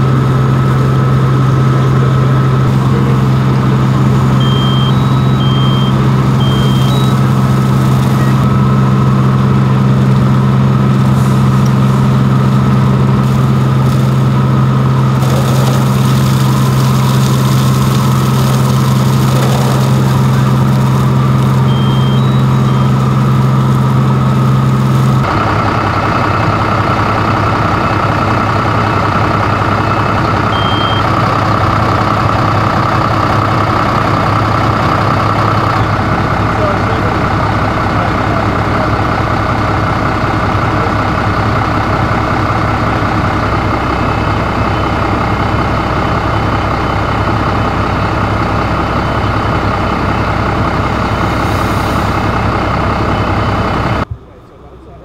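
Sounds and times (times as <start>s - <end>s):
diesel engine running: 0.0s - 55.0s
short high electronic beeps: 4.4s - 7.2s, 8.1s - 8.6s, 21.6s - 23.0s.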